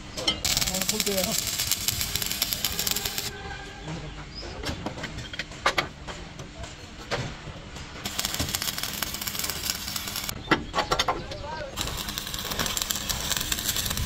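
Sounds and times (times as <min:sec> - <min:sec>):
arc welder crackling and hissing: 0:00.0 - 0:03.4, 0:08.0 - 0:10.4, 0:11.6 - 0:14.0.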